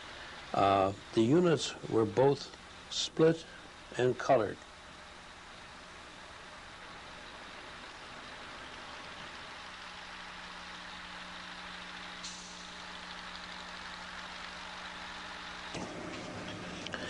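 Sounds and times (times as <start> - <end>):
crane hum: 0.0 - 17.0
truck engine running: 0.0 - 17.0
short hiss: 12.2 - 13.1.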